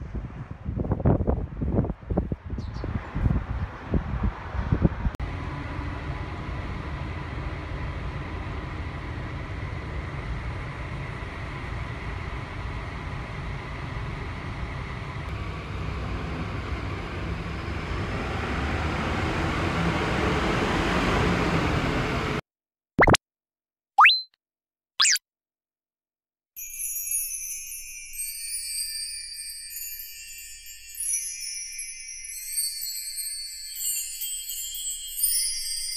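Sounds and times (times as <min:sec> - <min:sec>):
road rumble: 0:00.0 - 0:22.4
bus engine: 0:03.1 - 0:22.4.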